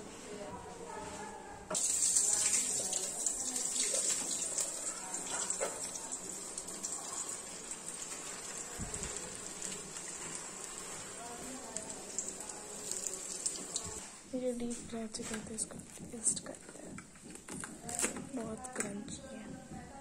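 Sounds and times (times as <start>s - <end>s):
oil sizzling deep-frying: 1.7s - 14.1s.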